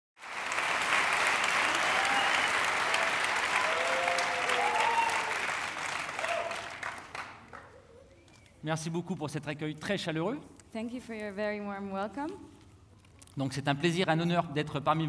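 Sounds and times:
audience applauding: 0.2s - 7.9s.

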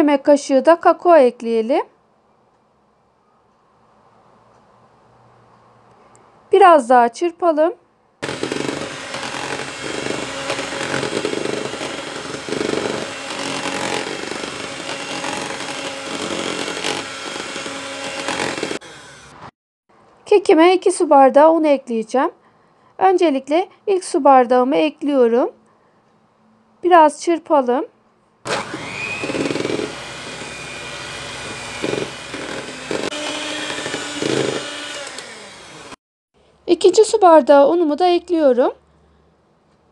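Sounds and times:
electric hand mixer whisking batter: 8.2s - 19.3s, 28.5s - 36.0s.

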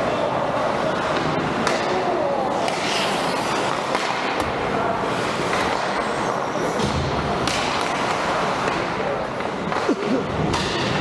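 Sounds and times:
skates scraping ice: 1.0s - 4.4s.

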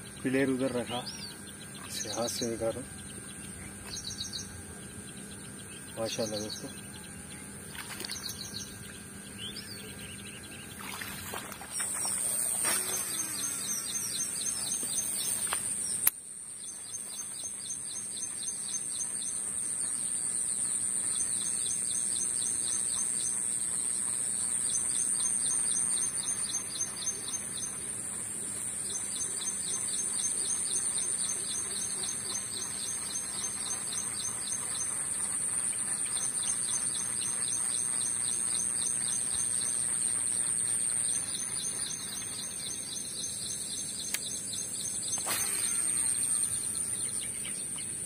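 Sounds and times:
birds chirping: 0.0s - 48.0s
steady high-pitched whine: 0.0s - 48.0s
sharp click: 14.7s - 16.2s, 44.0s - 44.4s.

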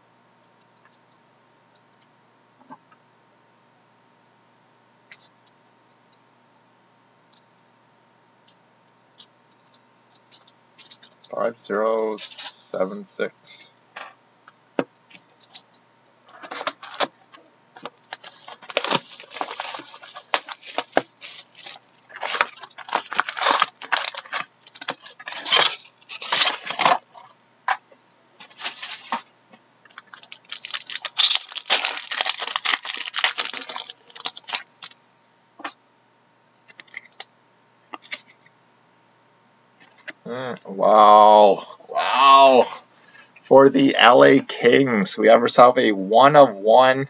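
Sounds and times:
card wrapper tearing and rustling: 12.2s - 12.6s, 16.3s - 17.2s, 17.8s - 27.3s, 28.4s - 29.3s, 29.9s - 35.0s, 38.0s - 38.4s.

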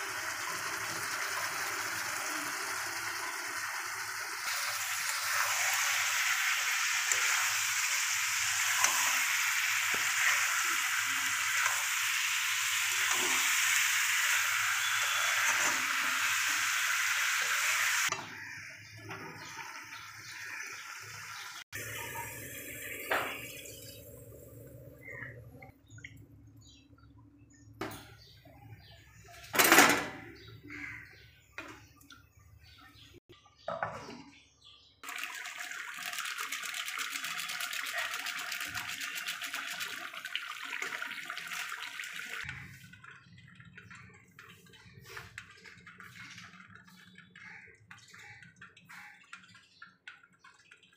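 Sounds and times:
meat sizzling in oil: 0.0s - 18.1s.

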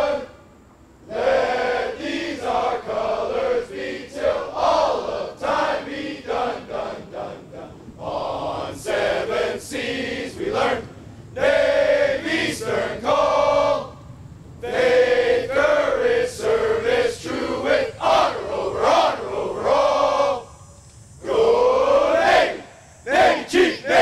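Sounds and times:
group singing without accompaniment: 0.0s - 20.6s, 21.2s - 24.0s.

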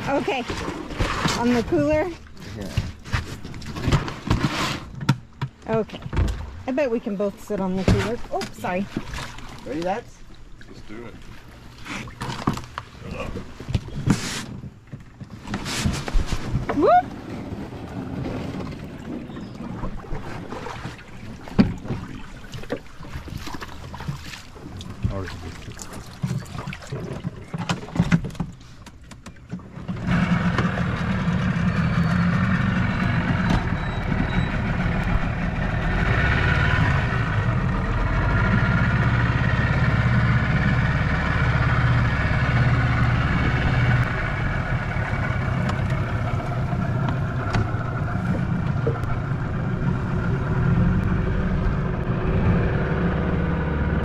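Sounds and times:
outboard motor running: 0.0s - 54.0s.

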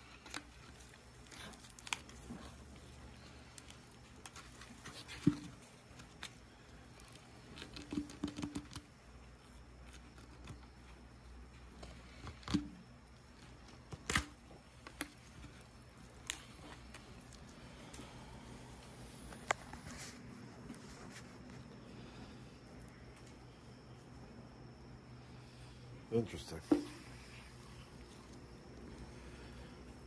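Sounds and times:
small clicks and cracks: 0.0s - 18.1s.

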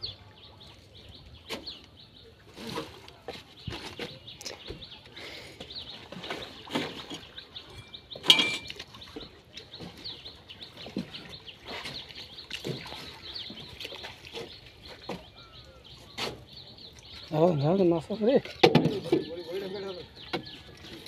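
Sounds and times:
small birds chirping: 0.0s - 21.0s
splashes from wading through water: 8.7s - 15.7s.

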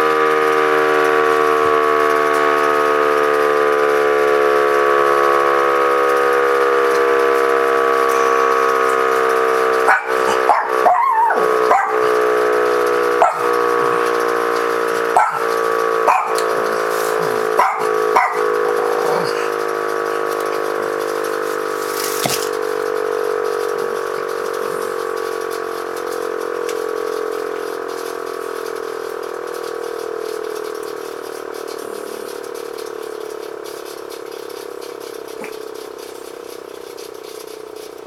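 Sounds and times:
siren winding down: 0.0s - 38.0s
dog barking: 9.8s - 12.2s, 13.1s - 14.2s, 15.1s - 19.6s.

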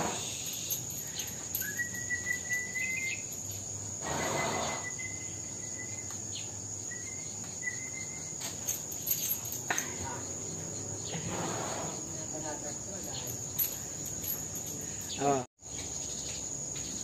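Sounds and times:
high-pitched insect drone: 0.0s - 6.1s
whistle-like tone: 1.6s - 3.3s, 4.4s - 6.1s, 7.0s - 8.3s.

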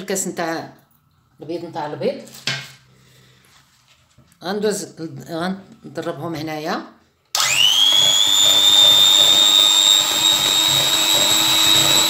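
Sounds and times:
hand mixer motor whine: 7.4s - 12.0s
beaters whisking eggs in bowl: 9.1s - 12.0s.

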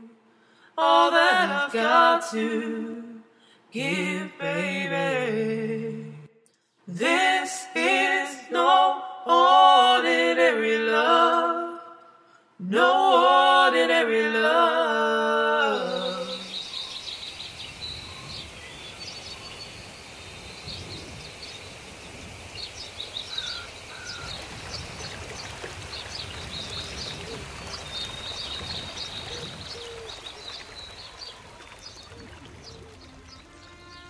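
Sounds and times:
small birds chirping: 15.7s - 34.0s.

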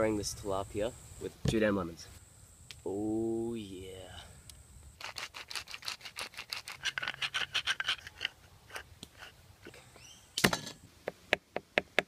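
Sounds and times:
spice grinder crunching: 5.0s - 9.3s.

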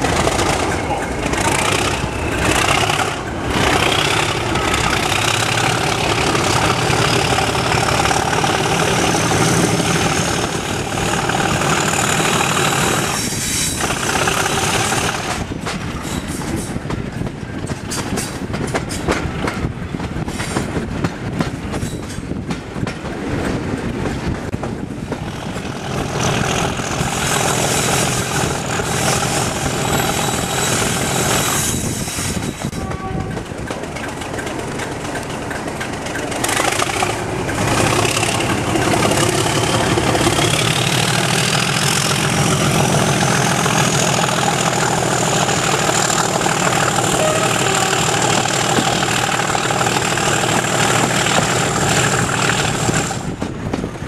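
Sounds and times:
diesel locomotive engine working: 0.0s - 54.0s
train wheel noise: 0.0s - 54.0s.

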